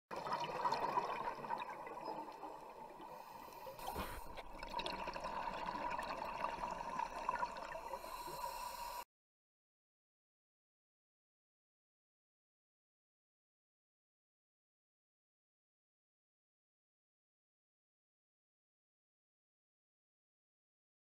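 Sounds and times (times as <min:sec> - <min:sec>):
underwater regulator bubbles: 0:00.1 - 0:09.0.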